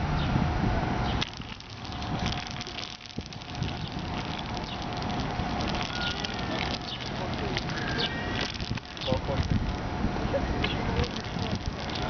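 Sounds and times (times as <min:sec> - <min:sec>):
toy wheels rolling on asphalt: 0:01.2 - 0:12.0.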